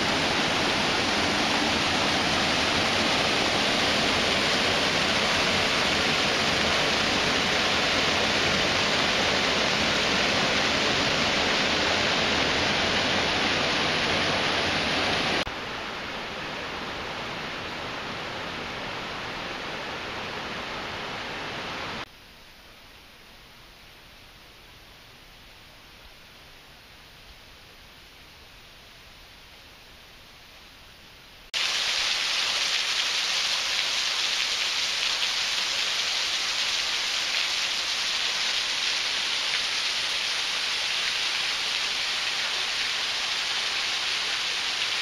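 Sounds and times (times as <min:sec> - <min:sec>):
water rushing over spillway: 0:00.0 - 0:22.1, 0:31.6 - 0:45.0.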